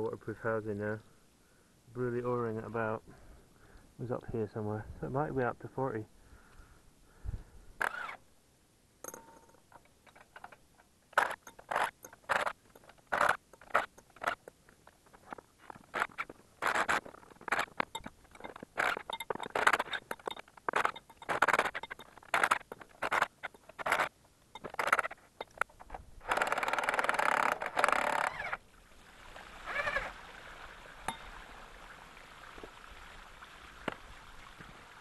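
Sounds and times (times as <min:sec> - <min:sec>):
mechanical tool bursts on nuts: 0:07.8 - 0:08.2, 0:16.0 - 0:28.6.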